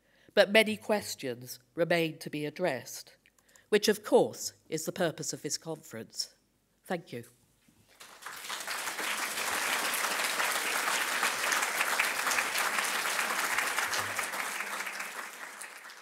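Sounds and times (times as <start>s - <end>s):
audience applauding: 7.9s - 16.0s.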